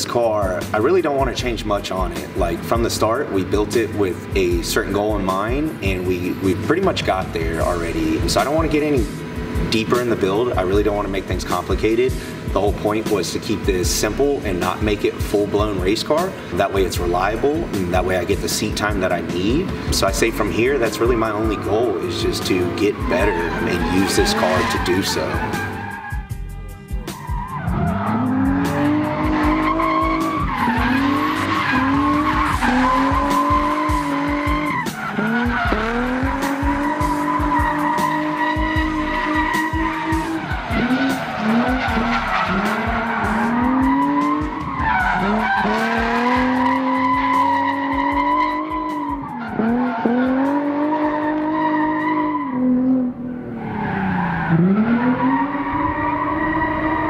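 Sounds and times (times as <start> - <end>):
tyres skidding: 0.0 - 57.0
car engine at high revs: 6.0 - 11.4, 27.2 - 57.0.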